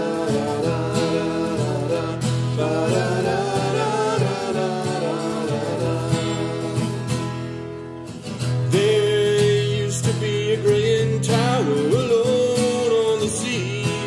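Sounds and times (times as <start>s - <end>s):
voices singing: 0.0s - 7.6s
acoustic guitars strumming: 0.0s - 14.0s.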